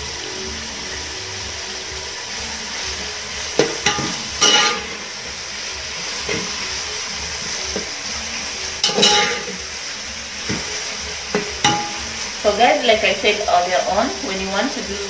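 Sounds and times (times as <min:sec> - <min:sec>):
onions sizzling in oil: 0:00.0 - 0:15.0
spoon scraping a pot: 0:03.6 - 0:05.1, 0:08.8 - 0:09.6.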